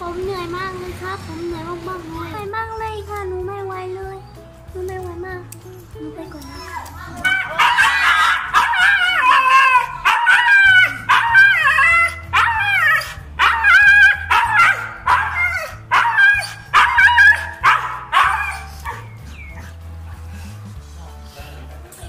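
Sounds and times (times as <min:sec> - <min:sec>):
dog howling and yowling: 0:06.4 - 0:19.7.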